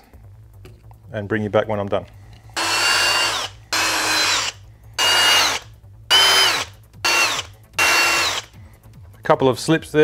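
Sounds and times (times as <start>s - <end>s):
electric drill whining: 2.6s - 8.6s.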